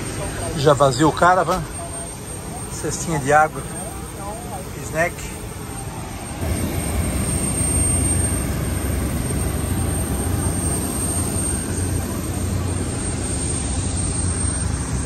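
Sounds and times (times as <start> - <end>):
aircraft engine rumbling: 0.0 - 15.0.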